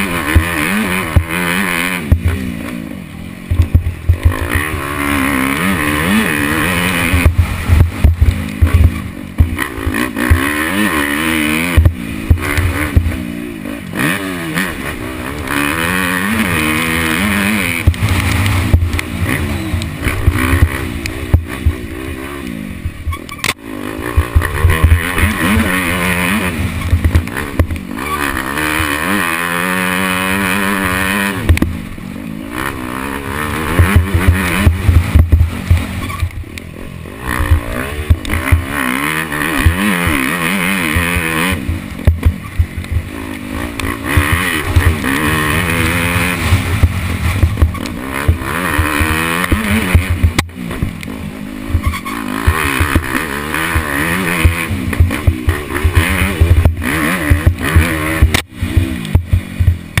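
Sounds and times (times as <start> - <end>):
dirt bike engine revving: 0.0 - 60.0.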